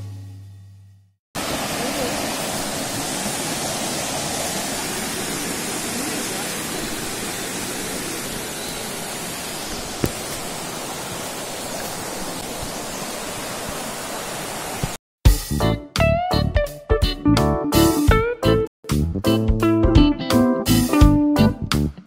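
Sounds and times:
river rushing over rocks: 1.4s - 15.0s.

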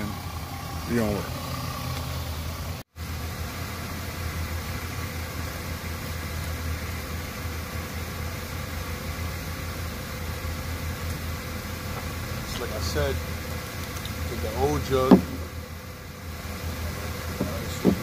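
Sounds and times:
car engine idling: 0.0s - 18.0s
hiss: 0.0s - 18.0s.

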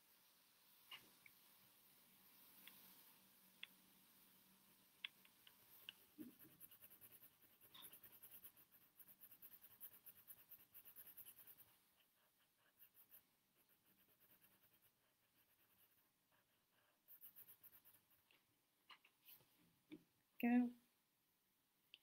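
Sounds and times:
pencil scratching on paper: 5.6s - 18.3s.

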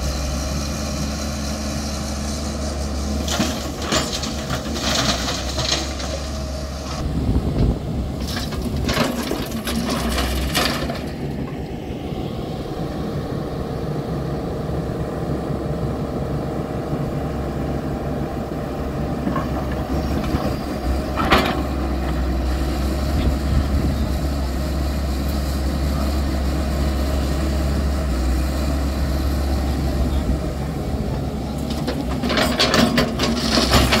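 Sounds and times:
excavator diesel engine running: 0.0s - 34.0s
earth and stones clattering: 3.2s - 6.5s, 8.2s - 11.2s, 31.6s - 34.0s.

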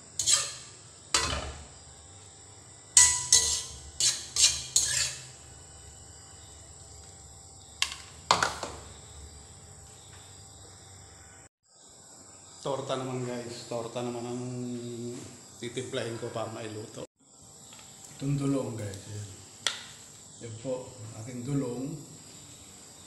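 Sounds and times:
metal spatula clanging in a wok: 0.2s - 1.7s, 3.0s - 5.4s.

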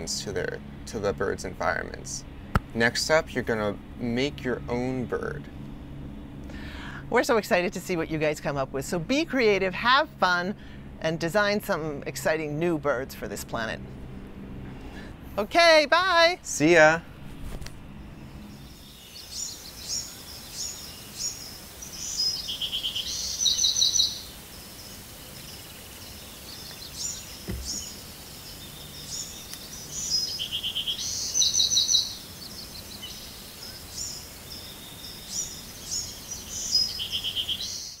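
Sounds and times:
songbird singing: 0.0s - 38.0s
steady outdoor hiss: 0.0s - 38.0s
soft low thump: 27.4s - 27.8s.

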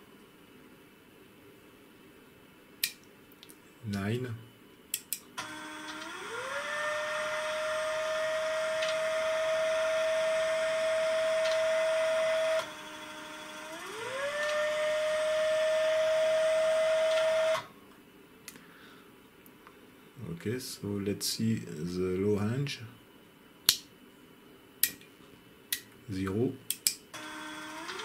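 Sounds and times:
stepper motor whine: 5.4s - 17.7s, 27.2s - 28.0s.

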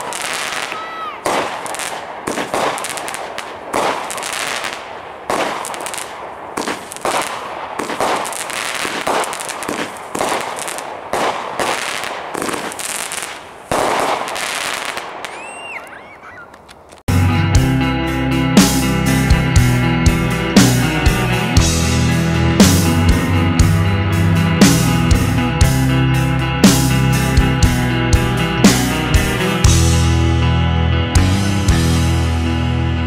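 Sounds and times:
firework shots bursting: 0.0s - 16.0s
crackling firework stars: 0.0s - 17.1s.

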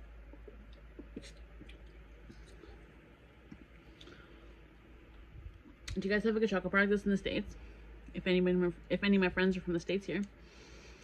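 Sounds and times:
faint mouth clicks: 0.3s - 2.6s
person drawing breath: 10.4s - 11.0s.

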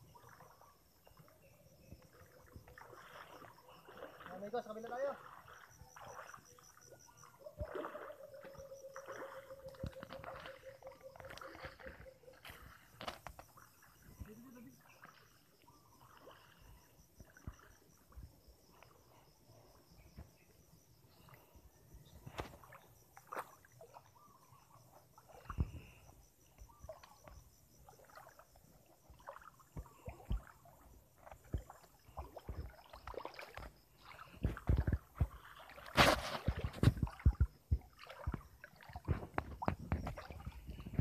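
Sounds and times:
footsteps splashing through stream: 2.7s - 6.8s, 7.6s - 14.2s, 31.2s - 41.0s.

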